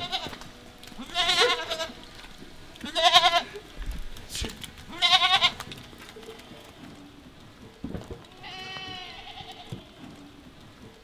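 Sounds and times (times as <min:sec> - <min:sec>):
young goat bleating: 0:00.0 - 0:00.4, 0:01.0 - 0:02.1, 0:02.8 - 0:03.7, 0:04.9 - 0:05.6, 0:08.3 - 0:10.0.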